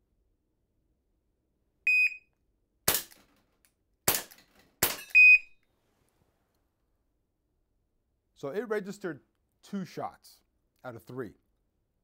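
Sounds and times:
shot timer beep: 1.9s - 2.3s, 5.0s - 5.6s
air pistol shots: 2.9s - 3.3s, 4.1s - 5.2s.

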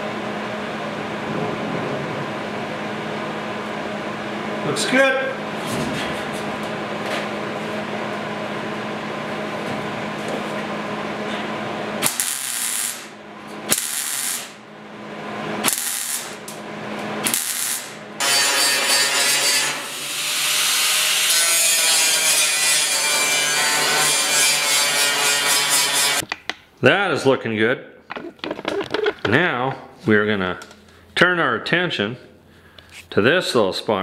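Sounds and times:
welder crackling: 12.0s - 14.6s, 15.6s - 16.6s, 17.2s - 19.8s.

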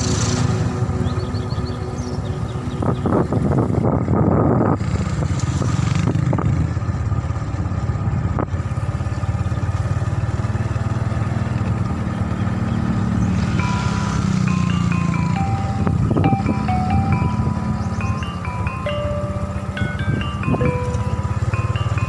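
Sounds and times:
vehicle engine low rumble: 0.0s - 22.0s
wind rushing over microphone: 2.6s - 6.9s, 15.8s - 17.6s.

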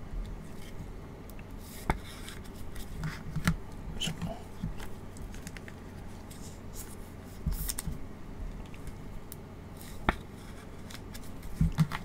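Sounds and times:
plastic sleeve rustling and clicking: 2.4s - 6.1s.

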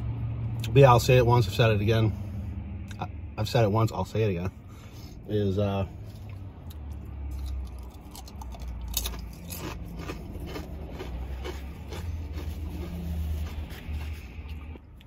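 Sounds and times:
person chewing crunchy food: 6.1s - 15.0s.

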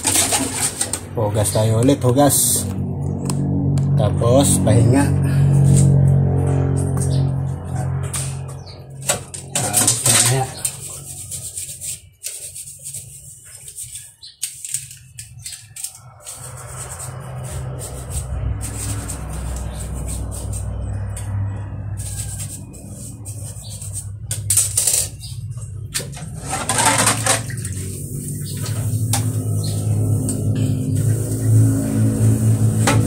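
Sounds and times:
sponge scrubbing metal pan: 9.6s - 14.2s, 15.8s - 20.8s, 21.9s - 24.0s
water splashing: 26.3s - 30.3s.

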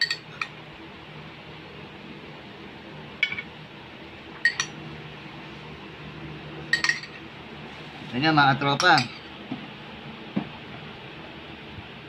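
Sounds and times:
metal spoon clinking on ceramic dish: 0.0s - 0.5s, 4.4s - 4.8s, 6.7s - 7.2s.

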